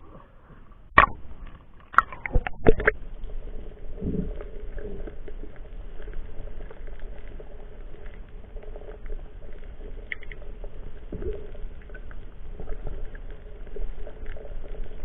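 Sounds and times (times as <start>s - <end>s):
muffled underwater hum: 0.0s - 15.0s
water splashing on camera: 0.9s - 9.1s.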